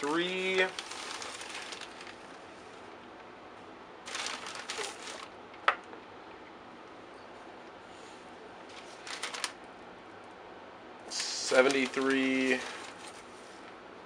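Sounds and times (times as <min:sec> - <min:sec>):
plastic bag rustling: 0:00.0 - 0:02.8, 0:04.1 - 0:05.4, 0:08.7 - 0:09.6, 0:11.1 - 0:13.7.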